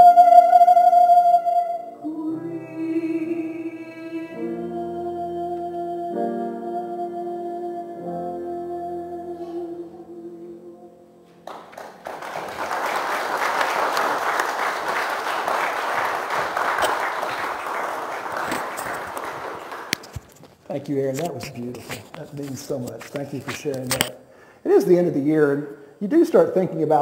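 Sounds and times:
person singing with piano: 0.0 - 11.3
congregation applauding: 11.4 - 20.5.

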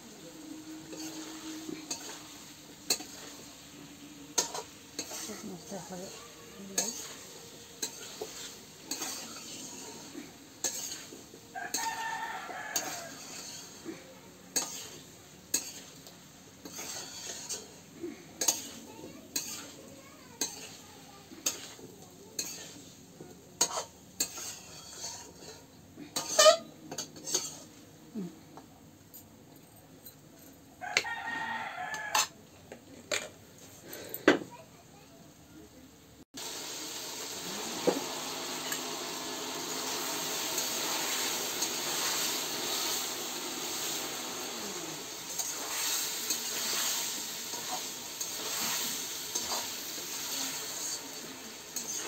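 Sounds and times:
food sizzling in oil: 0.0 - 28.2, 30.8 - 32.4, 36.3 - 52.0
metal spatula scraping a pan: 0.6 - 23.0, 23.6 - 27.8, 31.8 - 32.4, 38.5 - 52.0.

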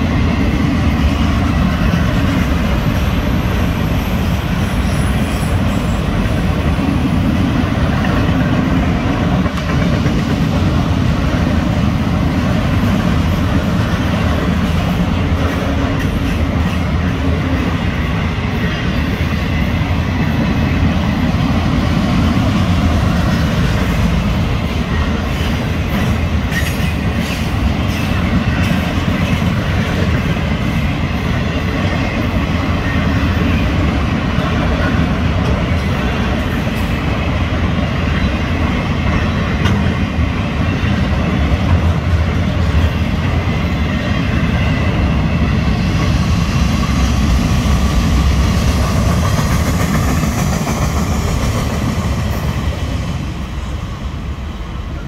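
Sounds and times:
clacks of train wheels: 0.0 - 53.8
train wheels rumbling on rail: 0.0 - 55.0.

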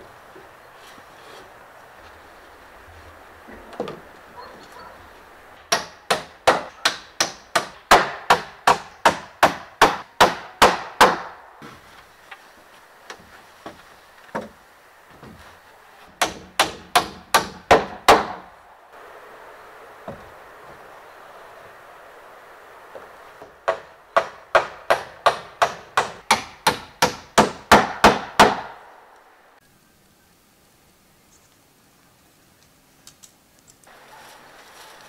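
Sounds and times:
hammer striking wood: 5.7 - 11.8, 16.1 - 18.5, 23.0 - 28.9.

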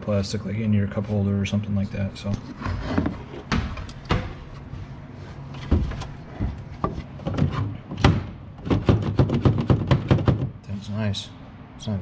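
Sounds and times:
plastic phone holder knocking: 8.0 - 10.5.

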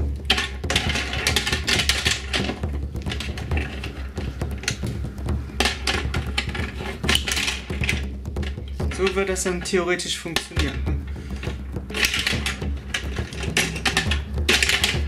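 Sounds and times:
plastic balls clattering: 0.0 - 15.0.

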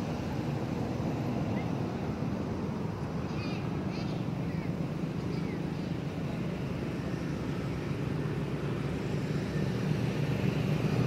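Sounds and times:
vehicle engine rumble: 0.0 - 11.0.

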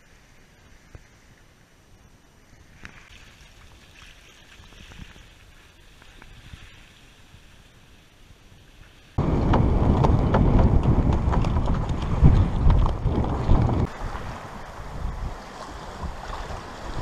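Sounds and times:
water splashing along boat hull: 2.8 - 7.1, 9.2 - 17.0
wind buffeting microphone: 9.2 - 17.0.

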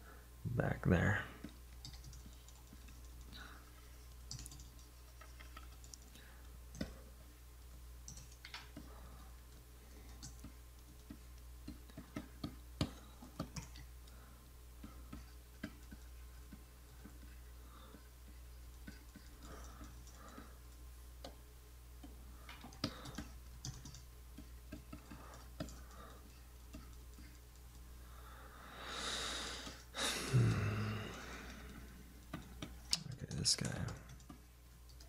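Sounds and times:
low steady hum: 0.0 - 35.0
keyboard keys clicking: 1.4 - 3.4, 4.1 - 7.0, 8.0 - 8.9, 9.5 - 13.9, 22.0 - 27.9.

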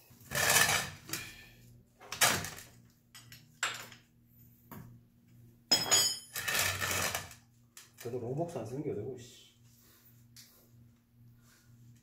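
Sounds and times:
metallic clink: 5.7 - 6.4.

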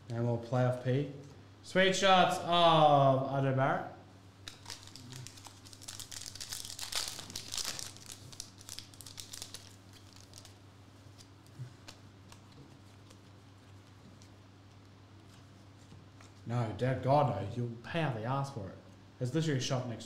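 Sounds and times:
foil wrapper tearing and crinkling: 4.4 - 10.6.

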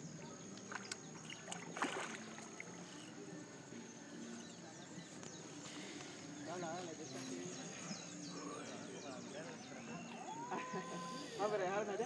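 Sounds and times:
water sloshing and splashing: 0.5 - 3.1.

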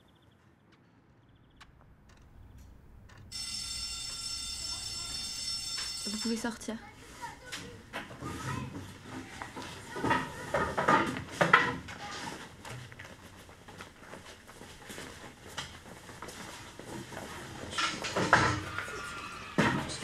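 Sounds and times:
desks and chairs knocking and scraping: 7.9 - 12.9, 16.8 - 19.0, 19.6 - 20.0.

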